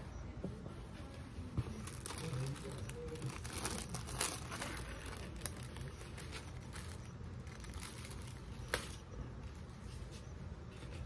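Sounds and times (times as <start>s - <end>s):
sharp plastic crackle: 1.7s - 9.5s
plastic film crinkling: 1.7s - 9.8s.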